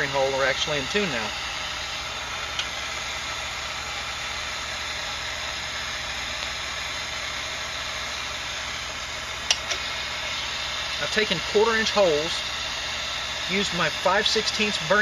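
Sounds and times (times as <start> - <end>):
steady hiss: 0.0 - 15.0
sharp click: 9.5 - 9.8.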